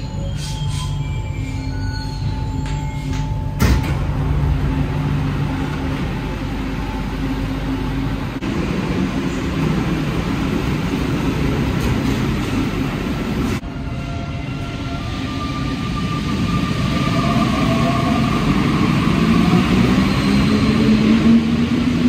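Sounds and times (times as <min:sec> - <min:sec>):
train running gear rumble: 0:00.4 - 0:13.6.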